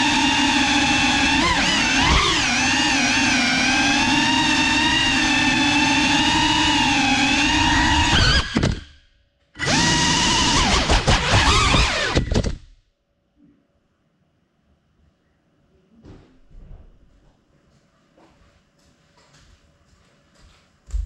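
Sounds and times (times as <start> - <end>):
drone motors whining: 0.0 - 9.0, 9.6 - 12.6.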